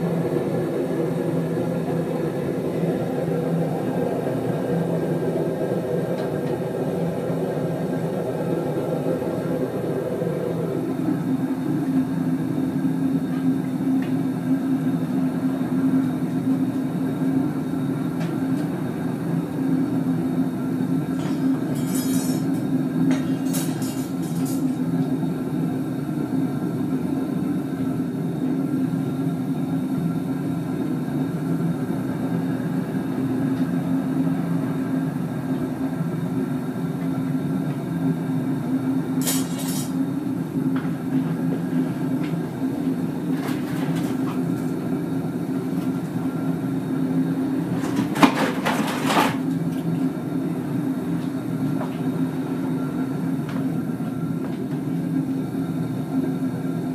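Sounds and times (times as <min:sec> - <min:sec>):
gas burner rushing: 0:00.0 - 0:26.0, 0:38.5 - 0:50.0.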